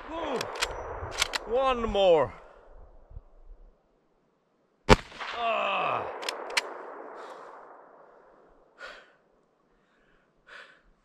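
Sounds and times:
rifle shot: 0:00.0 - 0:01.6, 0:04.9 - 0:08.4
sharp clicks: 0:00.3 - 0:01.5, 0:06.2 - 0:06.8.

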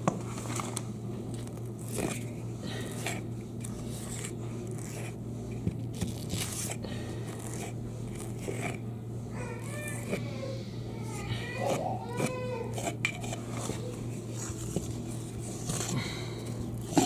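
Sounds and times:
putty knife scraping plaster: 0:06.0 - 0:08.8, 0:11.6 - 0:13.7.

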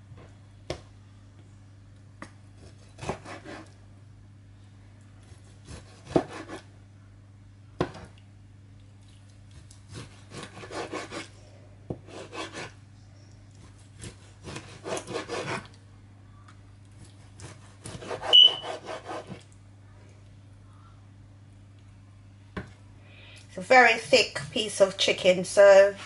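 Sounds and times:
knife sawing through raw meat: 0:02.7 - 0:03.7, 0:09.9 - 0:11.3, 0:12.1 - 0:12.7, 0:14.0 - 0:15.7, 0:17.4 - 0:19.4
blade rubbing on cutting board: 0:02.9 - 0:03.7, 0:09.9 - 0:11.3, 0:12.0 - 0:12.8, 0:14.0 - 0:15.7, 0:17.4 - 0:19.4
short high squeak: 0:18.2 - 0:18.7.

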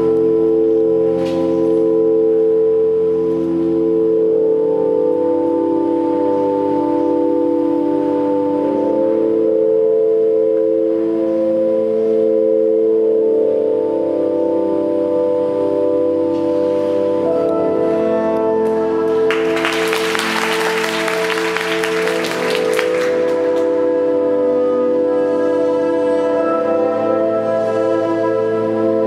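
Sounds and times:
slow orchestral music: 0:13.7 - 0:29.0
audience applause: 0:19.1 - 0:23.9.

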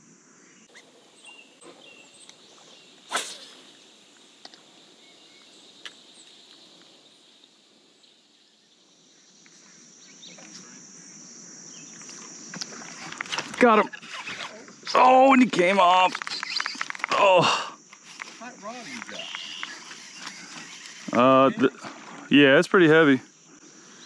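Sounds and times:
insects droning: 0:00.0 - 0:24.0
short sharp swish: 0:03.1 - 0:03.6.

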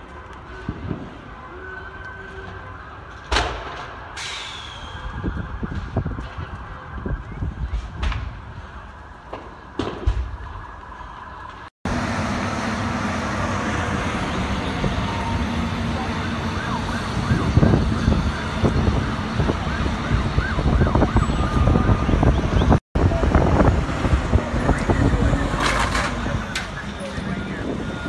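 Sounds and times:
fire engine siren yelping: 0:00.0 - 0:28.0
loud steady rushing noise: 0:11.9 - 0:28.0.

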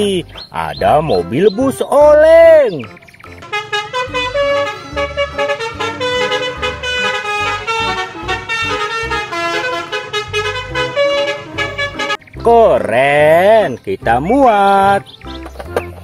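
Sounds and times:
bus musical horn melody: 0:03.4 - 0:12.4.

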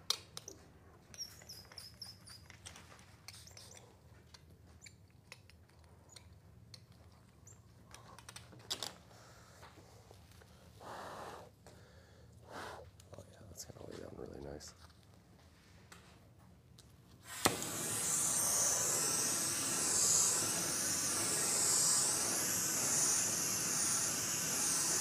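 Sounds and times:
high chirping squeaks: 0:01.1 - 0:02.7.

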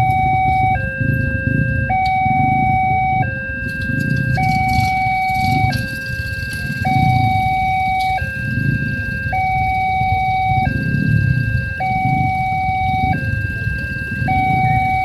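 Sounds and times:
level crossing two-tone alarm: 0:00.0 - 0:15.0.

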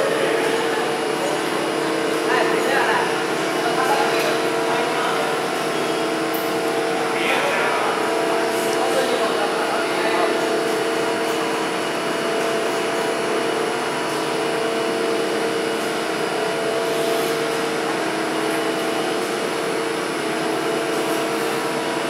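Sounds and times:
lift machinery humming and whining: 0:00.0 - 0:22.0.

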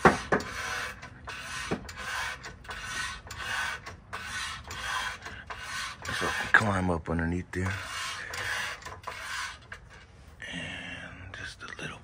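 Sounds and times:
floor jack pumping strokes: 0:00.0 - 0:06.7.

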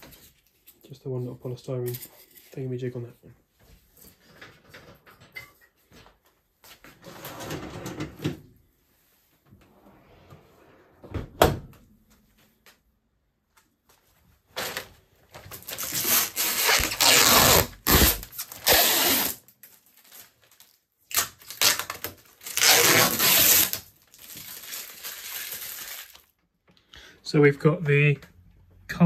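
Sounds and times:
plastic film peeling and crackling: 0:14.6 - 0:26.4.

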